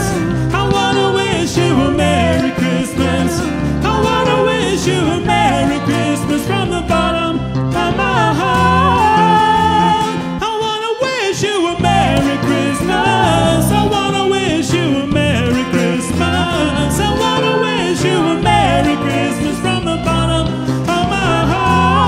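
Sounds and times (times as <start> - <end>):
electric bass guitar: 0.0 - 10.6, 11.6 - 22.0
live band playing: 0.0 - 22.0
man singing lead vocals: 0.0 - 22.0.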